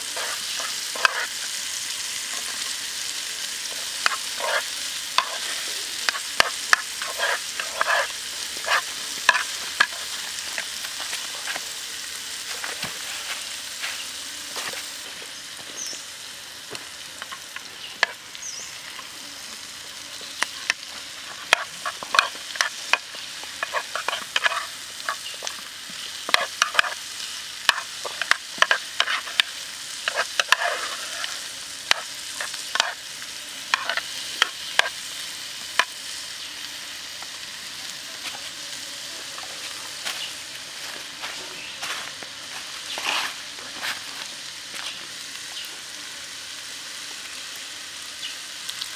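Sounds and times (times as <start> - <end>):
vegetables sizzling in hot oil: 0.0 - 48.9
metal spoon scraping a pan: 0.1 - 2.9, 3.6 - 11.6, 20.6 - 25.6, 26.2 - 27.0, 27.6 - 33.0, 33.7 - 35.0.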